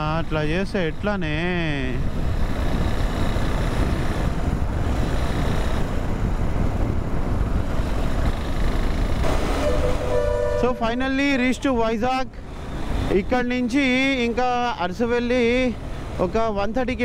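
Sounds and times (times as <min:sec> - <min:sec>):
wind rushing over microphone: 0:00.0 - 0:11.8.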